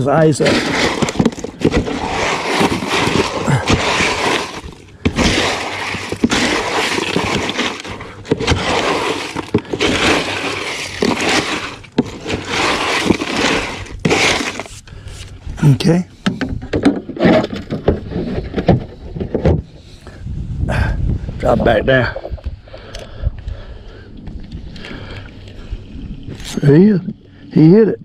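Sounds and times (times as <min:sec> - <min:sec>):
ice cubes crunching and clattering: 0:00.0 - 0:14.8.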